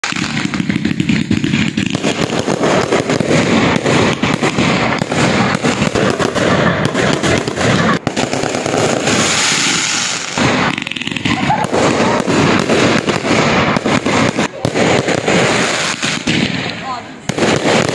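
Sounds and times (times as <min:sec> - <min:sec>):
fireworks bangs and crackles: 0:00.0 - 0:17.9.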